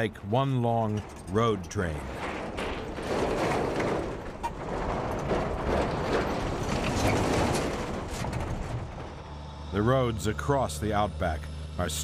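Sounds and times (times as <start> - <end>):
short rattles: 0.0 - 9.4
truck engine and tyres rumbling: 0.0 - 12.0.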